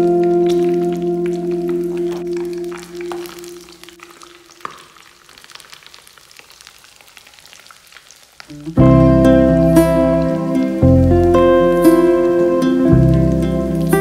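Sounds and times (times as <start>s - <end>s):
background music: 0.0s - 3.8s, 8.5s - 14.0s
patties sizzling in oil: 0.0s - 14.0s.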